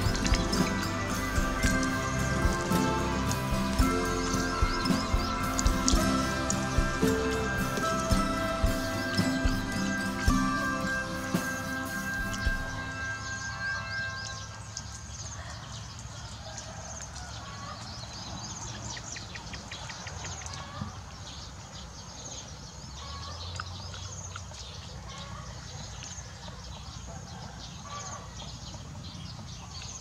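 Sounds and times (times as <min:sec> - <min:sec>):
bird trill: 0:00.0 - 0:16.0
birds chirping: 0:00.0 - 0:30.0
low outdoor background noise: 0:00.0 - 0:30.0.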